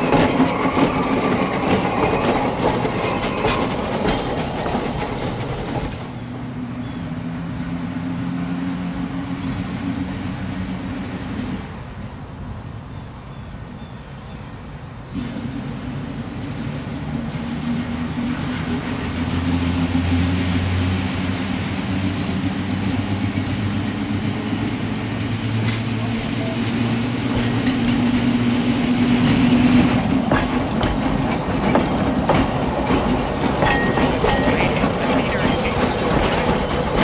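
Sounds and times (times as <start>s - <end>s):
wheels clicking over rail joints: 0.0s - 6.4s, 21.6s - 37.0s
electric trolley car running on rails: 0.0s - 37.0s.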